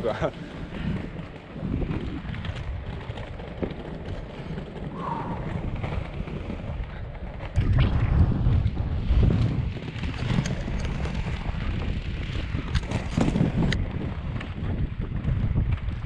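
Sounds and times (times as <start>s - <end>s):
skate wheels rolling on paving: 0.0s - 7.6s, 8.4s - 16.0s
wind buffeting microphone: 0.0s - 16.0s.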